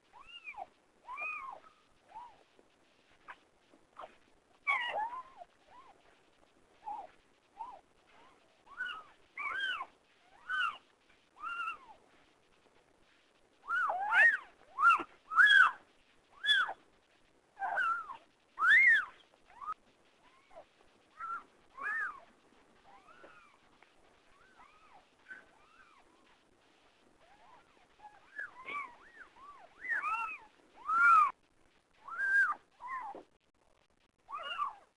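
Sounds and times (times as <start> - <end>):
kittens mewing: 27.4 - 31.4.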